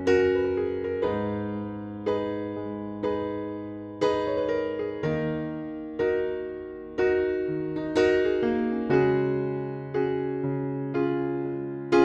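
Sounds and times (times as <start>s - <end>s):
soft piano chords: 0.0s - 12.0s.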